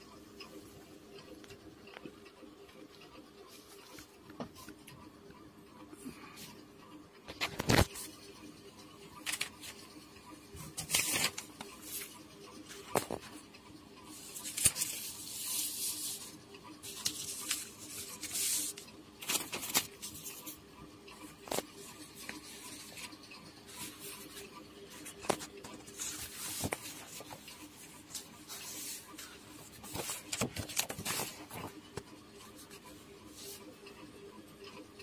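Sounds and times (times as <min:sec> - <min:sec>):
faint steady hum: 0:00.0 - 0:35.0
paper sheets rustling: 0:09.2 - 0:09.9, 0:10.6 - 0:13.4, 0:14.1 - 0:20.6, 0:21.3 - 0:32.1.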